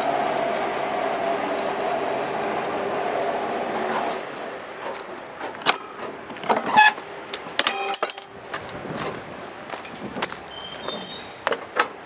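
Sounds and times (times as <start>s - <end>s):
railcar rumbling on rails: 0.0s - 12.0s
sharp metallic clanks: 5.5s - 8.4s
brief metal squeals: 10.4s - 11.5s.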